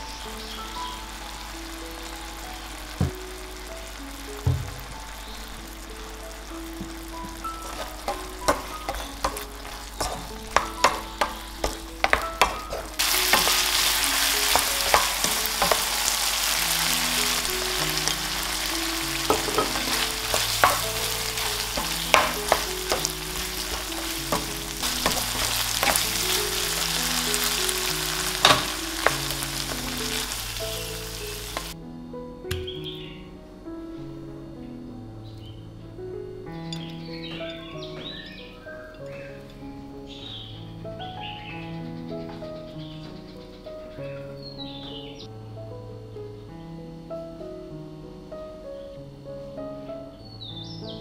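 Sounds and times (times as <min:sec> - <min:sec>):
shrimp sizzling in a pan: 0:00.0 - 0:31.8
background music low melody: 0:00.0 - 0:51.0
utensil clicking against pan: 0:07.6 - 0:16.0.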